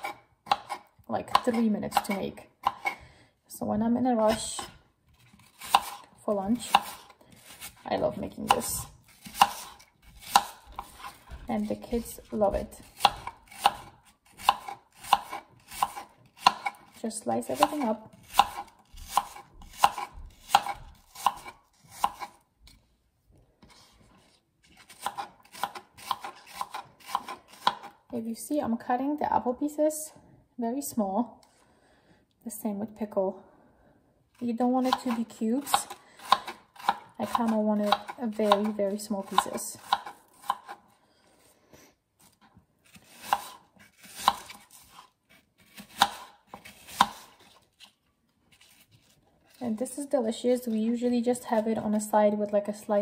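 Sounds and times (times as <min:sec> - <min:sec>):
knife chopping on wooden board: 0:00.0 - 0:03.0, 0:05.4 - 0:06.0, 0:06.6 - 0:07.8, 0:08.4 - 0:16.8, 0:17.5 - 0:22.4, 0:24.8 - 0:27.9, 0:34.8 - 0:40.8, 0:43.0 - 0:44.9, 0:45.6 - 0:47.4.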